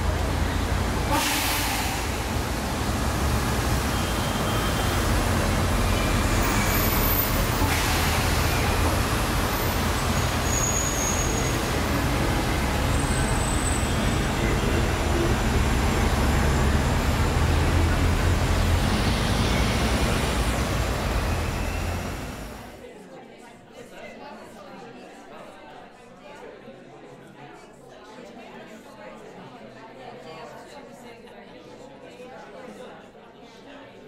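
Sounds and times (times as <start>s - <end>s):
city street traffic rumble: 0.0s - 22.8s.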